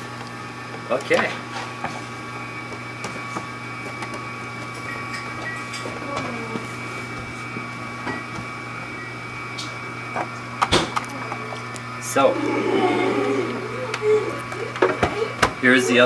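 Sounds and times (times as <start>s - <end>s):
juicer motor humming: 0.0s - 16.0s.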